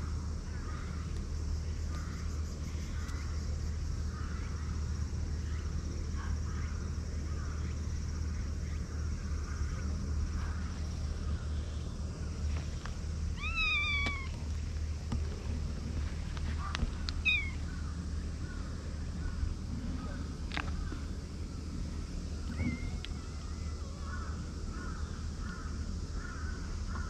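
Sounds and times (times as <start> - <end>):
steady low rumble: 0.0 - 27.0
cat meowing: 13.4 - 14.4, 17.2 - 17.6
faint short calls: 13.4 - 14.5, 16.5 - 17.8.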